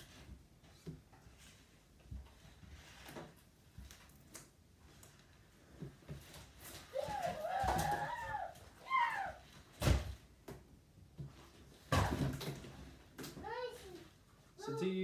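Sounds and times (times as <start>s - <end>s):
child squealing: 6.9s - 9.5s.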